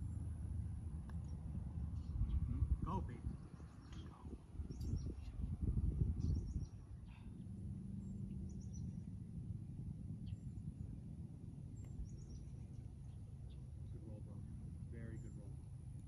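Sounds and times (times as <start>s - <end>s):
faint low drone: 0.0s - 16.0s
wind rumble on microphone: 0.0s - 16.0s.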